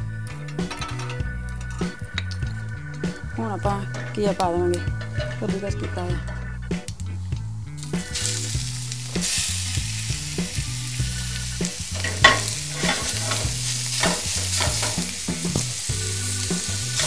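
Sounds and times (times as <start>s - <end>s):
spatula scraping a pan: 3.8s - 6.5s, 11.3s - 17.0s
gourd sizzling in hot oil: 7.7s - 17.0s.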